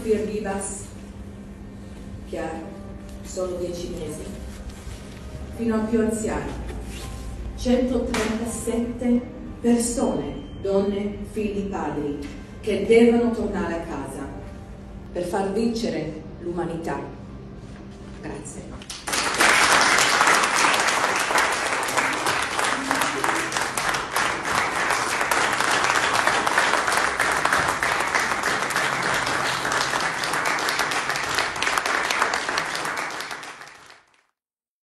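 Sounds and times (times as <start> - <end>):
audience applauding: 18.9 - 34.3.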